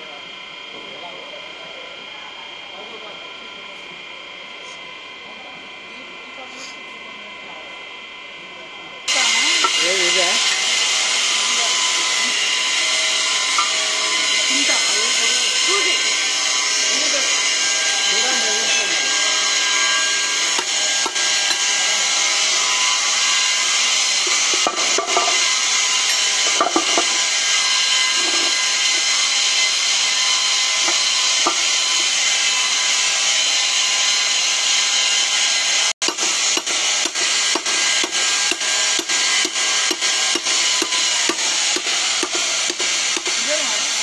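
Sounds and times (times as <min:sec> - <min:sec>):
loud machinery hiss: 0:09.1 - 0:44.0
hammer striking metal: 0:13.5 - 0:14.0, 0:19.4 - 0:21.9, 0:24.3 - 0:25.6, 0:26.4 - 0:29.1, 0:30.8 - 0:31.8, 0:36.0 - 0:43.4.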